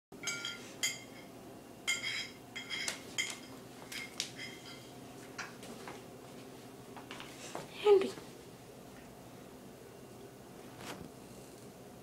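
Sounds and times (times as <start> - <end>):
light ringing clinks: 0.2 - 1.3, 1.9 - 5.0.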